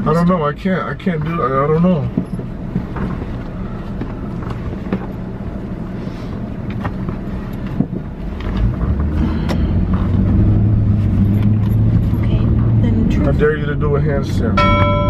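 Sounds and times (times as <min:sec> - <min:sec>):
car engine and road rumble: 0:00.0 - 0:15.0
low hum: 0:14.2 - 0:15.0.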